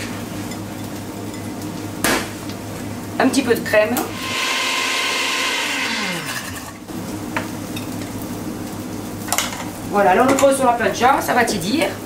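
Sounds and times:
blender motor winding down: 4.0 - 6.8.

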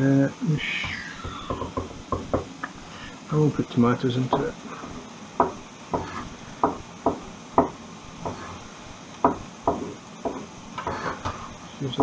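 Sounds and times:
knife knocking on wooden board: 0.8 - 2.5, 5.4 - 8.5, 9.2 - 11.4.

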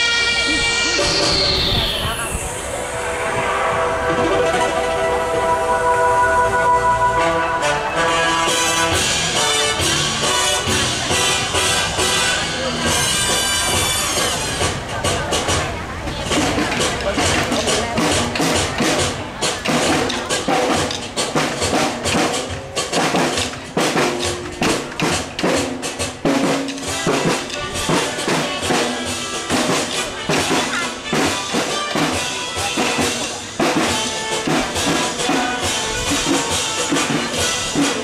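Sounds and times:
marching drums: 0.0 - 38.0
melody over drums: 0.0 - 38.0.

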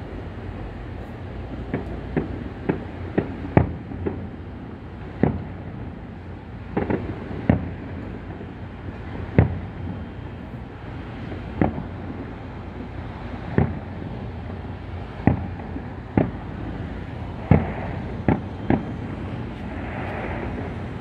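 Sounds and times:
low background rumble: 0.0 - 21.0
fireworks bursting: 5.0 - 21.0.

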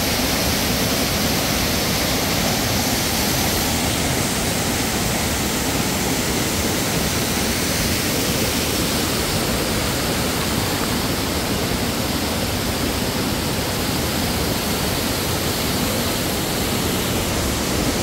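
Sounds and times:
loud rushing noise: 16.5 - 18.0.

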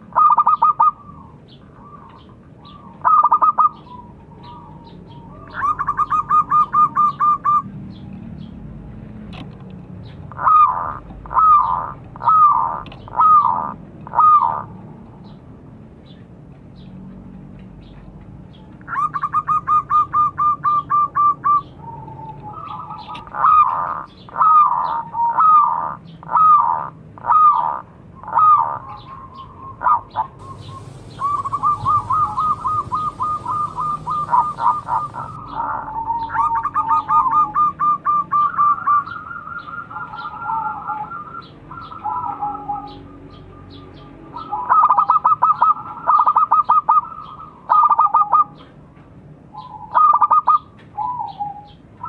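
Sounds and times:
dove cooing: 0.0 - 7.7, 10.3 - 14.7, 19.0 - 43.0.

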